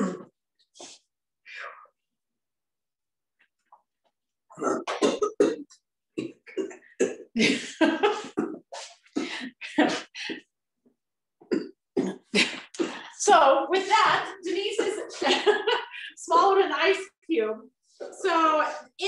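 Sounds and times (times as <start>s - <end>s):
woman coughing: 0.0s - 0.3s, 4.9s - 10.1s, 11.5s - 13.2s, 14.7s - 15.4s.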